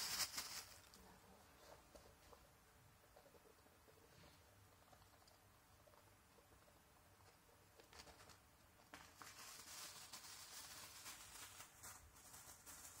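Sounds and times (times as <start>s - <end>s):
plastic bag crinkling: 0.0s - 1.0s, 9.1s - 13.0s.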